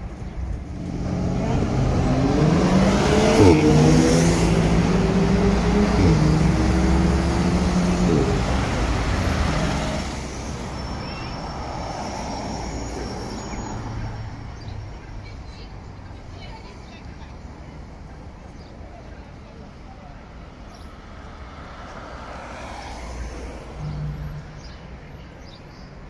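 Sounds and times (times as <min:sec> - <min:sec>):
vehicle engine accelerating: 0:00.0 - 0:14.8
steady traffic noise: 0:00.0 - 0:26.0.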